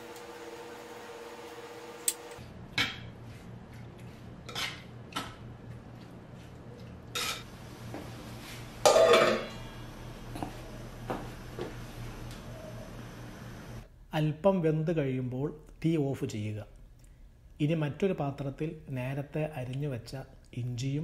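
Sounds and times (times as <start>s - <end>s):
metal lid clanging on pot: 8.8s - 9.5s.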